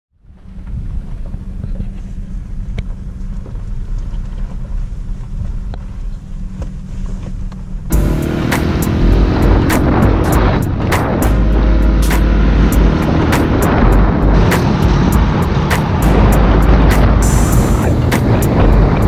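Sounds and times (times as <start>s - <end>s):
road rumble inside truck cab: 0.2s - 19.0s
rush of wind: 0.2s - 19.0s
dirt bike engine: 7.9s - 19.0s.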